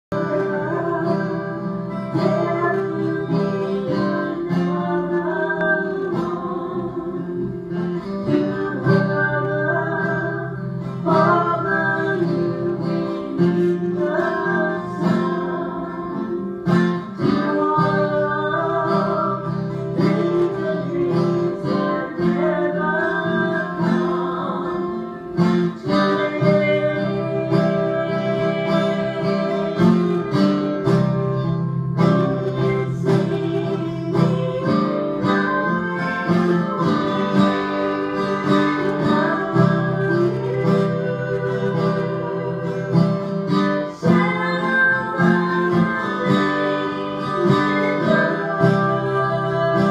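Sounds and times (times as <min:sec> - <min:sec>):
acoustic guitar strumming: 0:00.0 - 0:49.9
women singing: 0:00.0 - 0:49.9.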